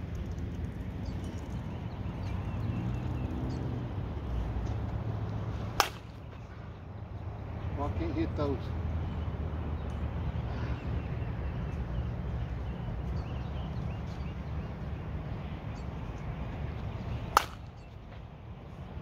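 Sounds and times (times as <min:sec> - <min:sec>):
bat hitting a softball: 0:05.7 - 0:06.2, 0:17.3 - 0:17.8.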